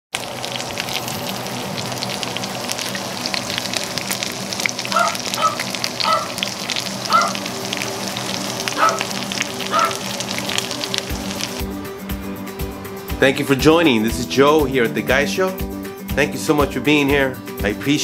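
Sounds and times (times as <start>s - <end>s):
chicken sizzling in skillet: 0.1s - 11.8s.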